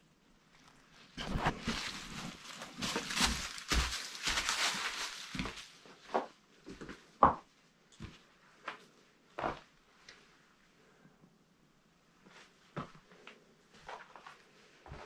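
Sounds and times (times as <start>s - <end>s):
footsteps on rocky leafy floor: 1.2s - 6.9s.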